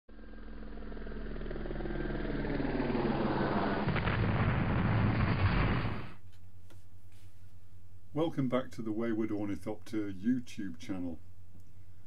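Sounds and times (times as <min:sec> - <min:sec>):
low heavy rumble: 0:00.1 - 0:06.2.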